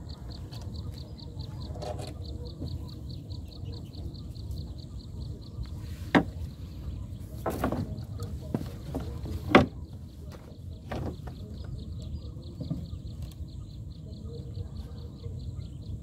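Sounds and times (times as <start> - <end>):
pole knocking on wooden boat: 6.1 - 6.5, 8.5 - 11.6.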